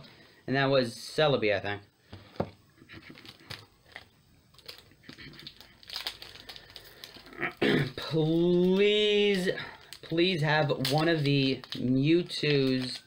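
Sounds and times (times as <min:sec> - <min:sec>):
foil wrapper crinkling: 0:03.1 - 0:13.0.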